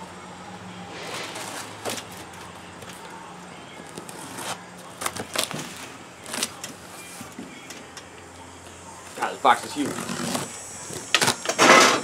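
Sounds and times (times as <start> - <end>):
low hum: 0.7 - 3.8
tape ripping: 3.8 - 6.7, 9.8 - 11.5.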